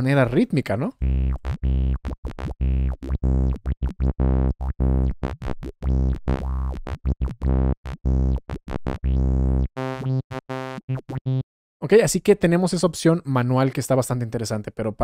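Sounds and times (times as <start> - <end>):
choppy synthesizer notes with phaser: 1.0 - 11.4.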